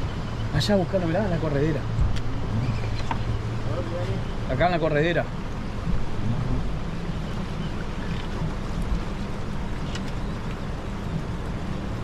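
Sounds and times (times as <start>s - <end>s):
outboard motor humming: 0.0s - 12.0s.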